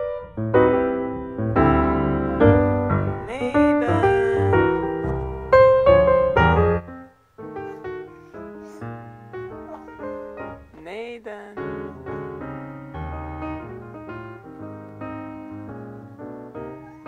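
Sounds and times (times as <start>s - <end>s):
piano music: 0.0s - 17.0s
voice gliding up and down: 2.3s - 5.7s.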